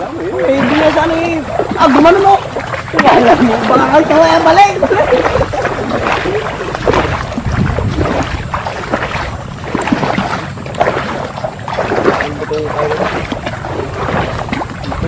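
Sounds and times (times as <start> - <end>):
footsteps sloshing through water: 0.0 - 15.0.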